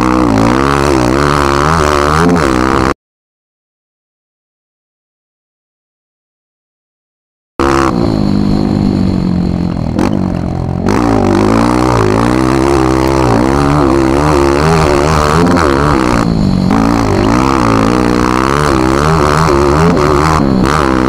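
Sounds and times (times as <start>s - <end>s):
dirt bike engine revving: 0.0s - 3.0s, 7.6s - 21.0s.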